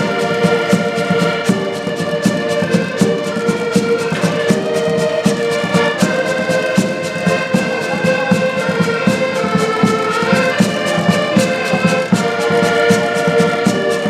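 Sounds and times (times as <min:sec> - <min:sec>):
accordions playing folk tune: 0:00.0 - 0:14.0.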